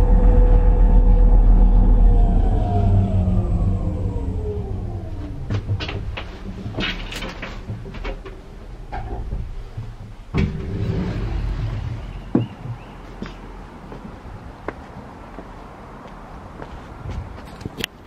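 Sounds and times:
cable car drive whining: 0.0s - 13.1s
clicks and knocks: 5.4s - 11.2s.

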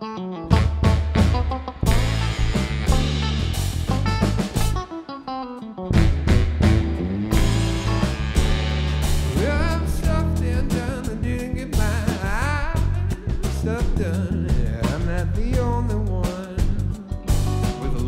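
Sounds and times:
saxophone: 0.0s - 11.1s
bass guitar: 0.0s - 18.0s
electric guitar: 0.0s - 18.0s
drum kit: 0.5s - 5.2s, 5.9s - 18.0s.

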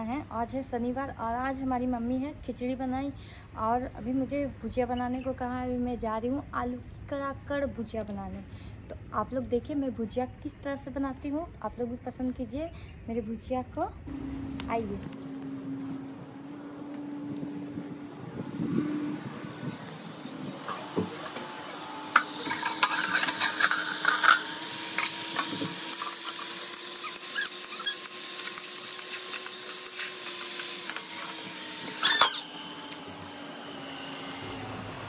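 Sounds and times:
potatoes sizzling in a wok: 21.8s - 32.2s
spatula scraping a metal pan: 22.2s - 26.5s.

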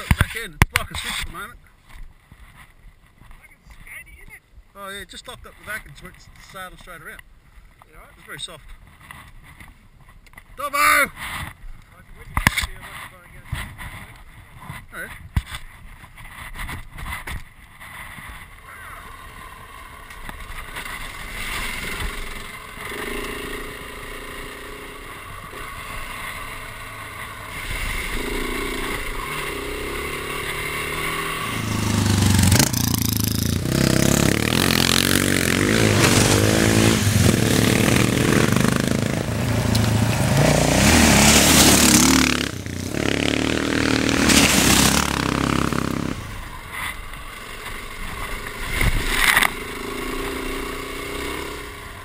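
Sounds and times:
motorcycle engine revving: 18.3s - 52.0s.

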